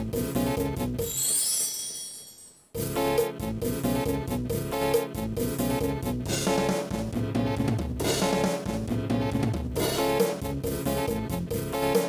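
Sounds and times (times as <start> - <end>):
keyboard dance rhythm with bass: 2.8 - 12.0.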